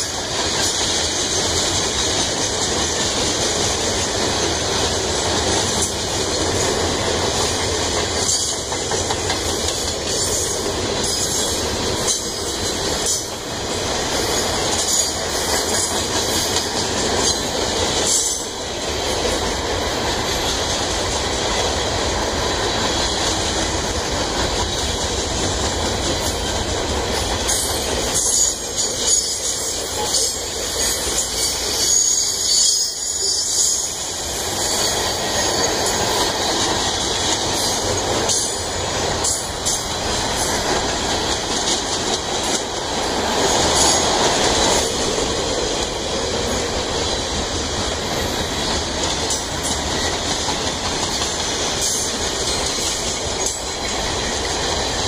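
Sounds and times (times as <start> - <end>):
train wheels clacking on rails: 0.0 - 55.0
train wheels squealing: 14.1 - 18.7, 27.1 - 36.6, 37.4 - 41.4, 43.3 - 45.0.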